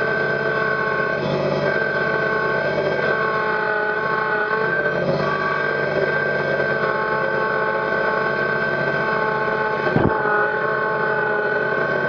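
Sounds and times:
diesel tractor engine running: 0:00.0 - 0:12.0
high whine: 0:03.0 - 0:12.0.

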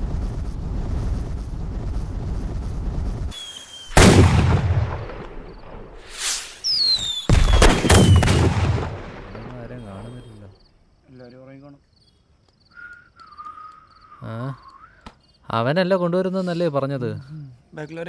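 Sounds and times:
firework rising whoosh: 0:00.0 - 0:08.9
low fireworks rumble: 0:00.0 - 0:10.6
firework whistles: 0:01.9 - 0:04.0, 0:05.5 - 0:08.4, 0:09.7 - 0:10.4, 0:12.7 - 0:15.1.

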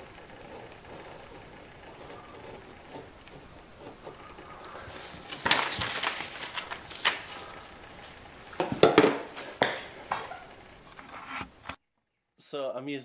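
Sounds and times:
blade slicing paper: 0:00.0 - 0:08.3
paper rustling: 0:00.0 - 0:11.8.

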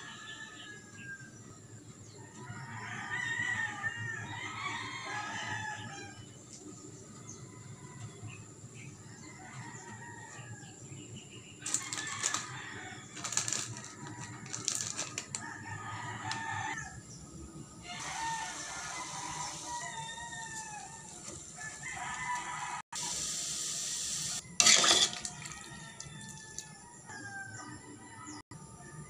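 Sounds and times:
roosters crowing: 0:02.3 - 0:06.3, 0:11.6 - 0:23.2, 0:24.4 - 0:28.8
plastic bag crinkling: 0:11.7 - 0:12.6, 0:13.2 - 0:15.4.

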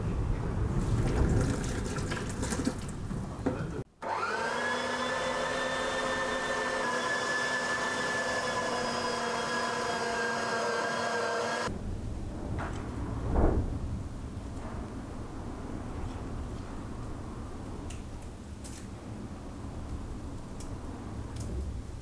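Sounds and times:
low rumbling noise: 0:00.0 - 0:03.9, 0:11.7 - 0:22.0
electric meat grinder motor whine: 0:04.0 - 0:11.7.

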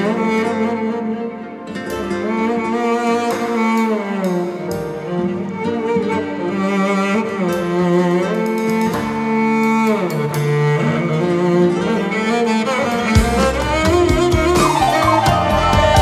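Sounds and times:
cello playing slow melody: 0:00.0 - 0:16.0
kanun and keyboard accompaniment: 0:12.7 - 0:16.0
low bass line: 0:13.2 - 0:16.0.

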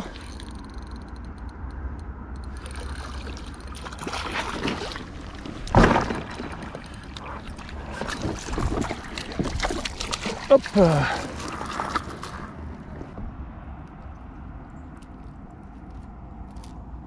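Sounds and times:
fish splashing in water: 0:02.5 - 0:12.5.

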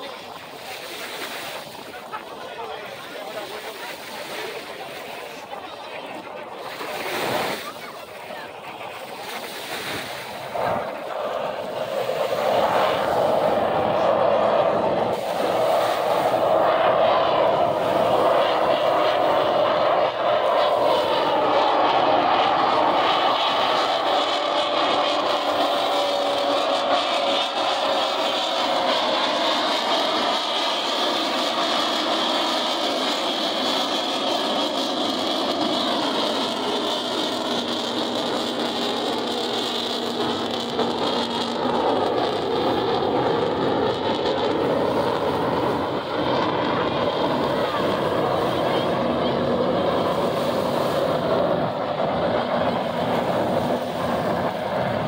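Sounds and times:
jet engine rumble and whine: 0:00.0 - 0:55.0.

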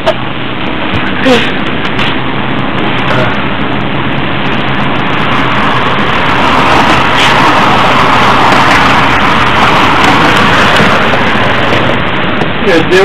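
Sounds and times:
bus engine drone: 0:00.0 - 0:13.0
road noise rushing: 0:00.0 - 0:13.0.

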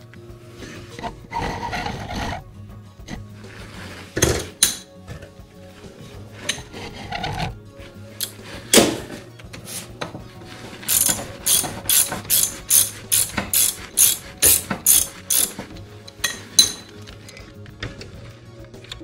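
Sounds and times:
ratchet wrench clicking: 0:10.9 - 0:16.9.

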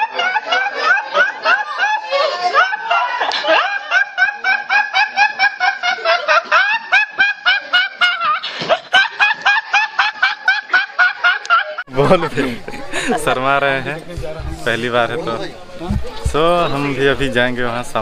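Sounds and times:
rapid snickering laugh: 0:00.0 - 0:13.2.

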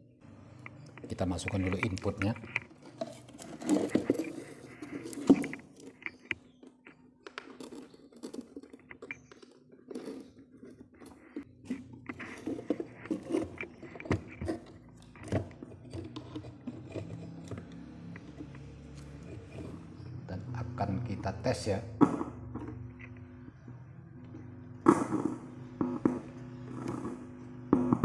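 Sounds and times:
cable plug handling clicks and scrapes: 0:00.7 - 0:19.8.

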